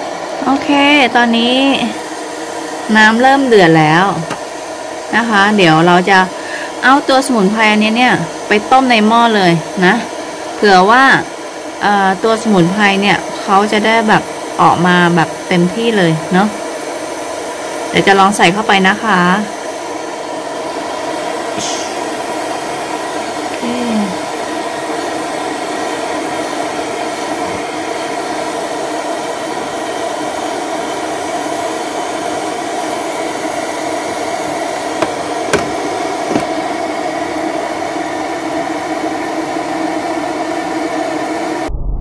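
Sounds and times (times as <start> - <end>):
water boiling hard: 0.0 - 38.2
plastic lid clicks: 35.0 - 36.6.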